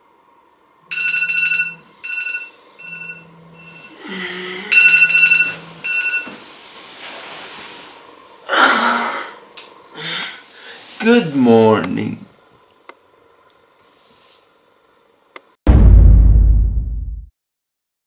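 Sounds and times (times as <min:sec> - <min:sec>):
alarm ringtone beeping: 0:00.9 - 0:03.9, 0:04.7 - 0:06.2
person yawning: 0:04.0 - 0:04.7, 0:08.5 - 0:09.4
person groaning: 0:08.5 - 0:09.4.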